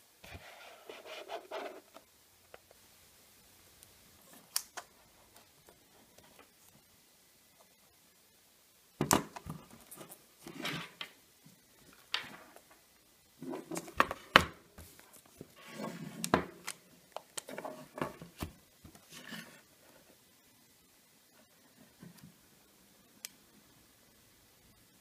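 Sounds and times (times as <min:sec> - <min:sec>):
case scraping on wooden desk: 0:15.6 - 0:16.2.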